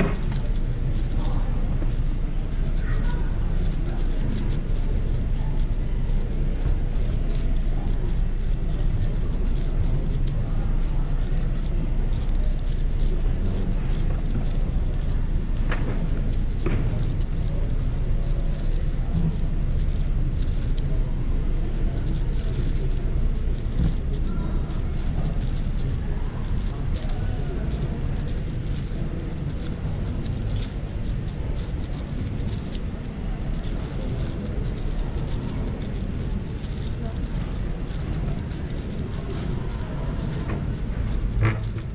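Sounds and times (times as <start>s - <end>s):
faint murmuring voices: 0.0s - 41.9s
low rumble of hall: 0.0s - 41.9s
puzzle cube clicking: 24.9s - 39.5s.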